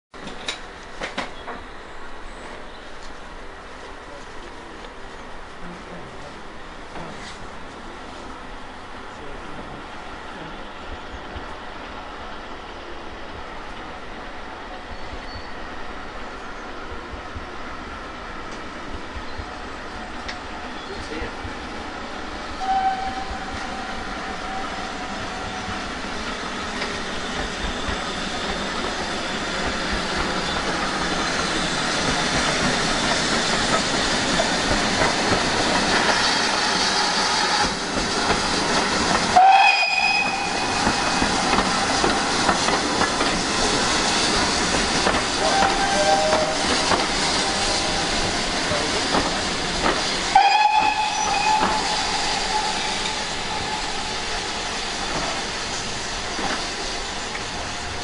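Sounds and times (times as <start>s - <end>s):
train wheels clattering on rails: 0.2s - 1.7s, 25.0s - 58.0s
steam locomotive exhaust: 22.4s - 58.0s.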